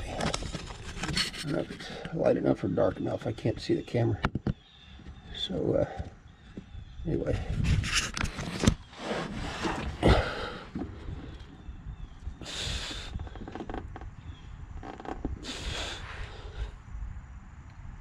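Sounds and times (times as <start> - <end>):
faint handling noise: 0.0 - 11.8, 13.1 - 16.0
man breathing out through nose: 12.4 - 13.3, 15.4 - 16.8.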